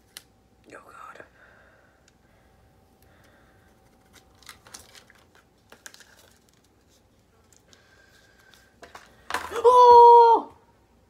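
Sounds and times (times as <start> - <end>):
paper sticker sheet rustling: 3.7 - 8.6.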